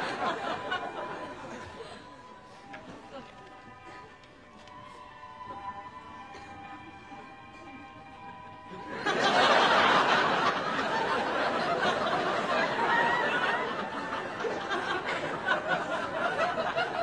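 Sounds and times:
audience laughing: 0:00.0 - 0:02.2, 0:08.7 - 0:17.0
soft music: 0:00.0 - 0:17.0.

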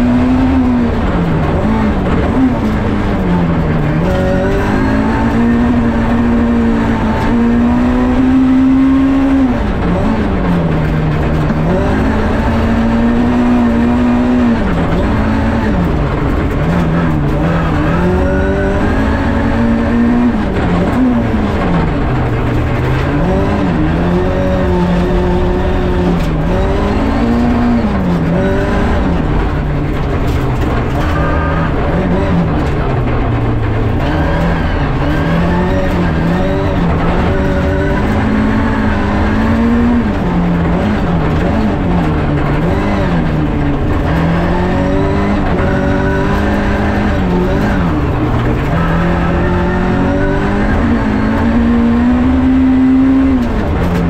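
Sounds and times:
rally car engine revving: 0:00.0 - 0:54.0.

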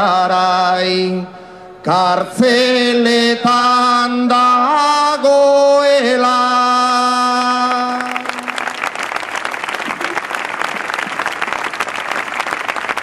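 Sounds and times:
man singing over loudspeakers: 0:00.0 - 0:08.6
crowd applauding: 0:07.9 - 0:13.0.

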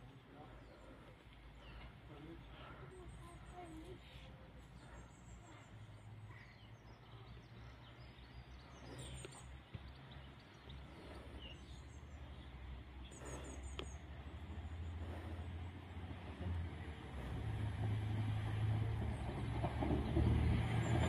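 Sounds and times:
diesel train approaching: 0:00.0 - 0:21.0.

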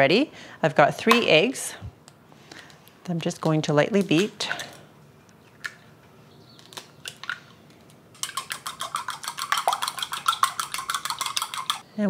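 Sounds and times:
eggs cracking into a bowl: 0:06.5 - 0:11.8
chopsticks beating eggs in bowl: 0:08.2 - 0:11.8.

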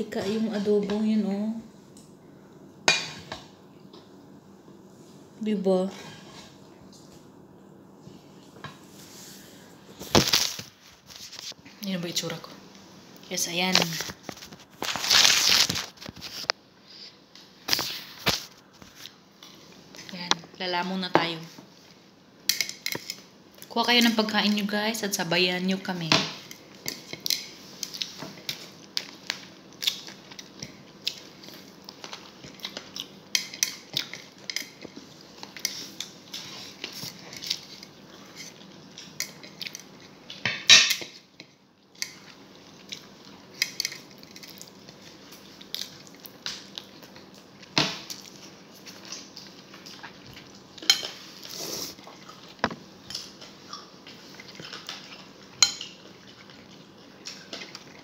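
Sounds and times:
chewing: 0:26.9 - 0:40.4, 0:42.0 - 0:58.0.

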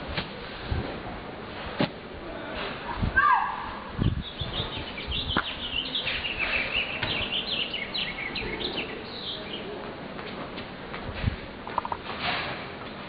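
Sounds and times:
birds chirping: 0:04.0 - 0:09.8.

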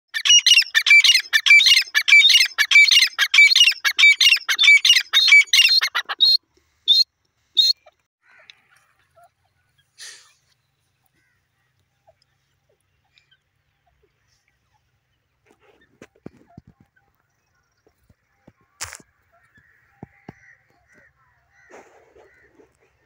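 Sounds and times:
francolin calling: 0:00.2 - 0:07.0.

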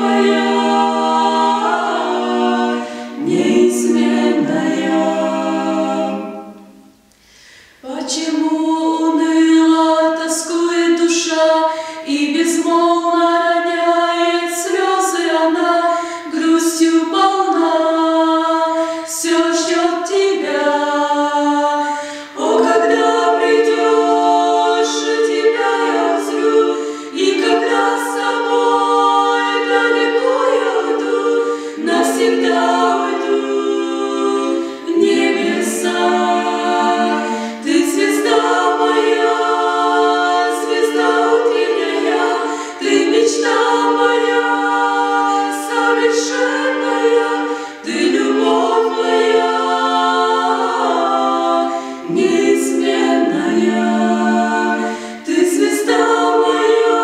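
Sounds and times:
a cappella vocal quartet singing: 0:00.0 - 0:57.0
singers breathing: 0:02.8 - 0:03.2, 0:07.0 - 0:07.9, 0:11.7 - 0:12.1, 0:15.9 - 0:16.3, 0:18.8 - 0:19.1, 0:21.8 - 0:22.4, 0:26.8 - 0:27.2, 0:31.4 - 0:31.8, 0:37.2 - 0:37.7, 0:42.4 - 0:42.8, 0:47.4 - 0:47.9, 0:51.7 - 0:52.1, 0:54.8 - 0:55.3.

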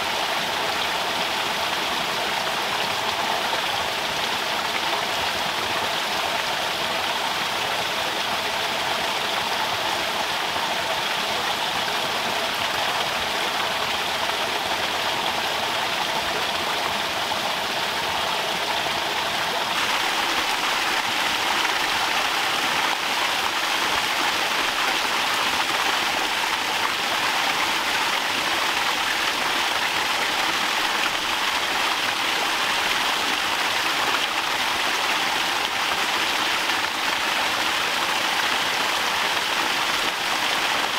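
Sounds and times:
water splashing into pond: 0:19.6 - 0:31.5.

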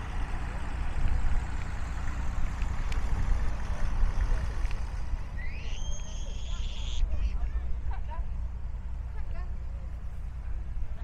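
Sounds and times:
engine idling: 0:00.0 - 0:11.0
high rising whistle: 0:05.4 - 0:07.1.

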